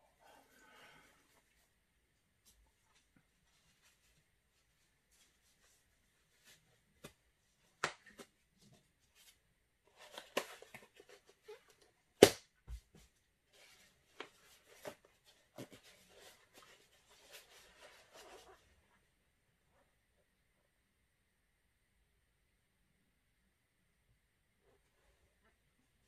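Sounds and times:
rustling: 0:00.0 - 0:12.0, 0:12.8 - 0:19.9.

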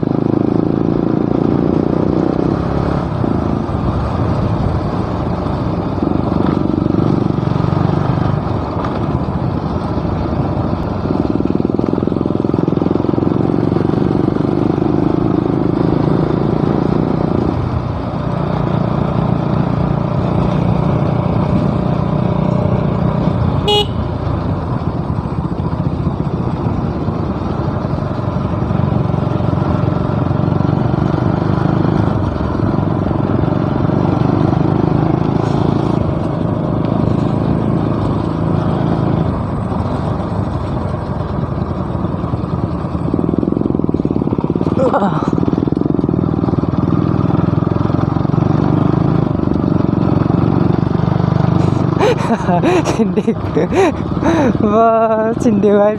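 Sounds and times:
motorcycle engine running: 0:00.0 - 0:55.9
horn beep: 0:23.6 - 0:24.1.

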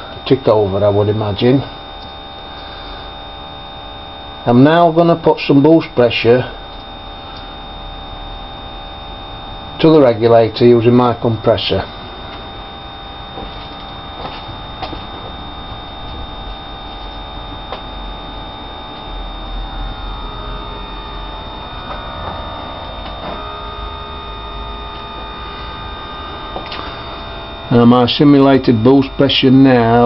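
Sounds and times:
electric fuel pump humming: 0:00.0 - 0:30.0
rising tones: 0:11.9 - 0:29.2.

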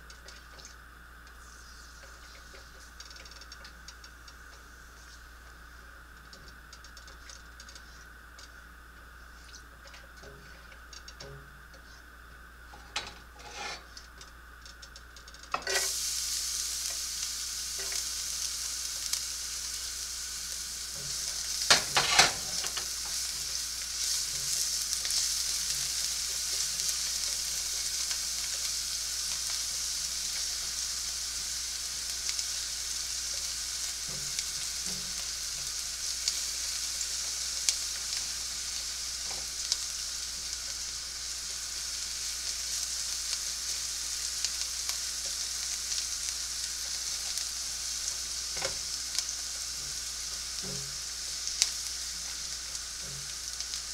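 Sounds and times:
garlic sizzling in a pan: 0:00.0 - 0:53.9
spatula knocking and scraping pan: 0:12.8 - 0:13.9, 0:21.0 - 0:22.9.

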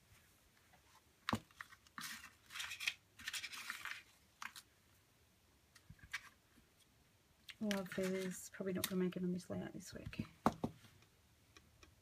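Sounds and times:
hands rustling small packages: 0:01.2 - 0:05.0, 0:05.7 - 0:09.1.

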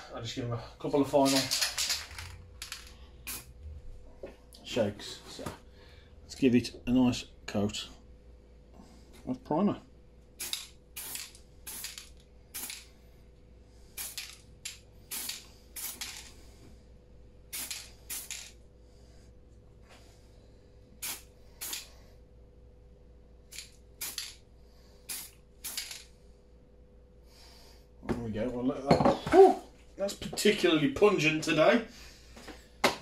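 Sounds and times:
aerosol can spraying hisses: 0:15.1 - 0:16.2, 0:21.0 - 0:21.9, 0:25.0 - 0:25.9.

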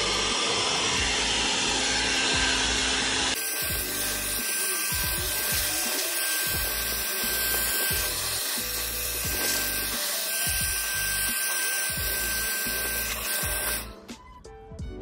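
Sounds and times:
electric blower running: 0:00.0 - 0:14.1
background music with a beat: 0:03.4 - 0:15.0.

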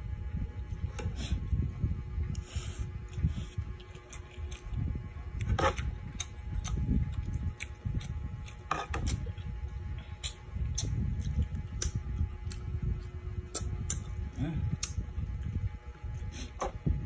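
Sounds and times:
chewing and mouth noises: 0:02.3 - 0:15.5.

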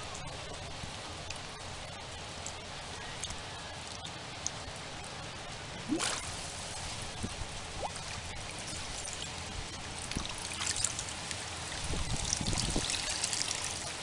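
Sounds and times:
water splashing and trickling: 0:00.0 - 0:14.0.

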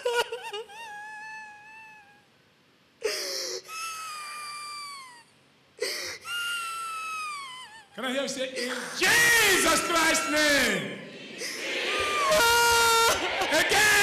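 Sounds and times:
woman sobbing and wailing: 0:00.0 - 0:02.4, 0:03.0 - 0:08.0, 0:11.4 - 0:14.0
woman gasping breath: 0:03.0 - 0:04.5, 0:05.8 - 0:06.4.

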